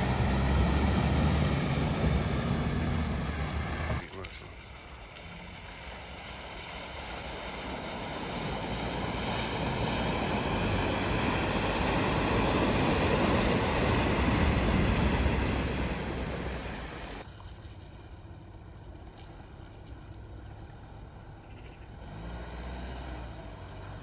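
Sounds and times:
truck engine running: 0.0s - 17.2s
water rushing and splashing: 0.0s - 20.9s.

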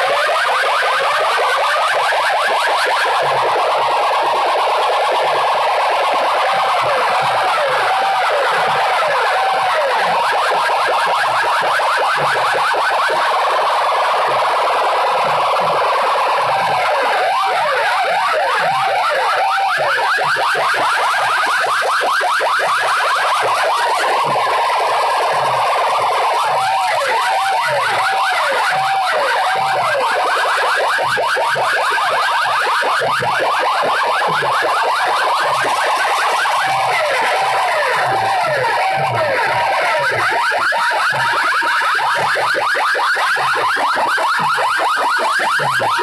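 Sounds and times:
fast rising electronic chirps: 0.0s - 46.0s
rise-and-fall siren wail: 0.0s - 46.0s.

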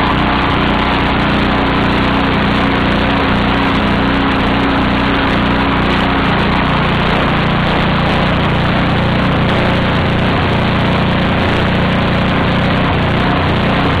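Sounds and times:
small generator engine running: 0.0s - 14.0s.

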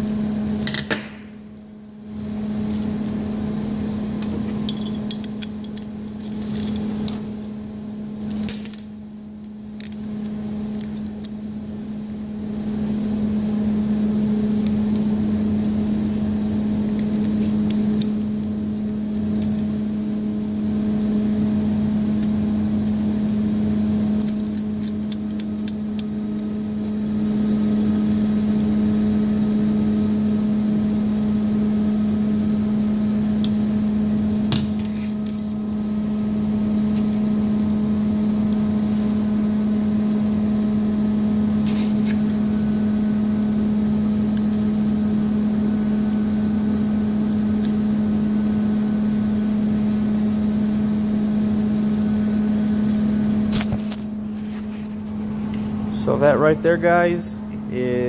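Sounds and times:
loud steady hum: 0.0s - 58.0s
small metal parts clinking: 4.2s - 7.3s, 24.1s - 29.5s, 51.8s - 54.1s.

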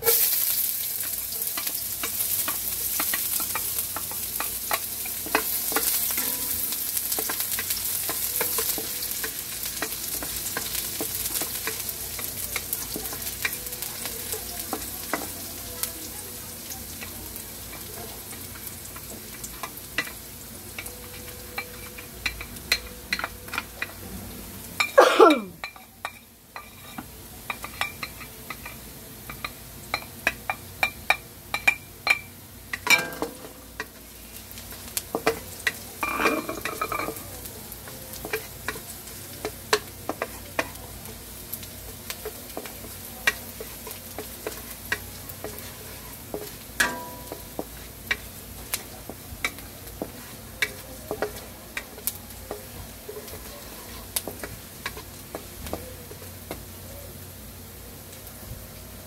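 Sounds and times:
spatula scraping and tapping pan: 0.0s - 24.0s, 25.6s - 56.7s
onion sizzling in hot oil: 0.0s - 59.0s.

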